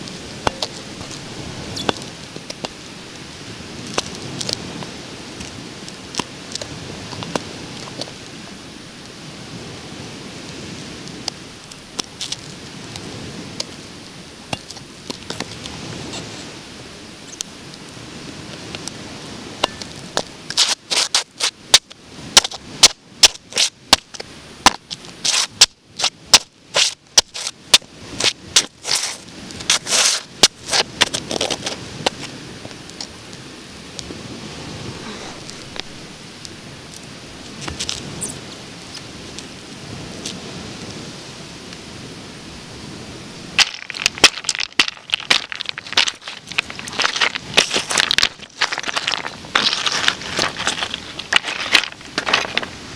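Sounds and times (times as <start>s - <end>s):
wind hissing: 0.0s - 52.9s
footsteps on pebbles: 24.7s - 32.3s, 43.6s - 52.8s.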